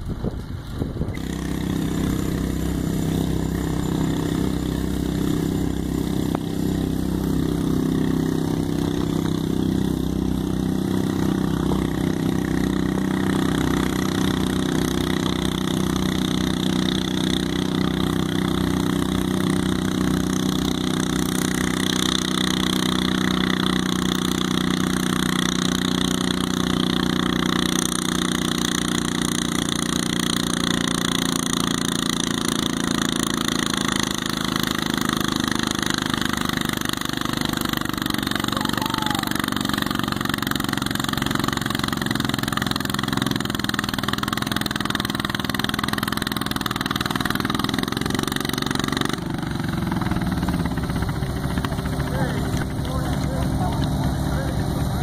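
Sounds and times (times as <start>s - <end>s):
small tractor engine under load: 0.0s - 55.0s.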